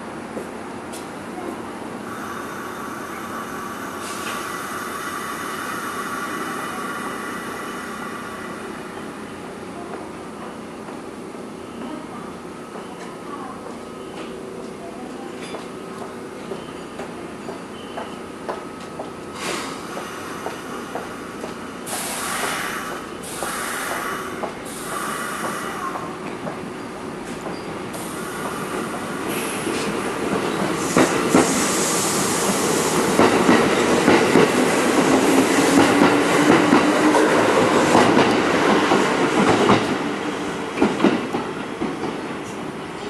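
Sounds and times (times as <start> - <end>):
train motors humming: 0.2 - 43.0
train air hisses: 2.0 - 9.4, 19.3 - 26.2, 27.9 - 33.5
train wheels clicking on rail joints: 12.8 - 40.0.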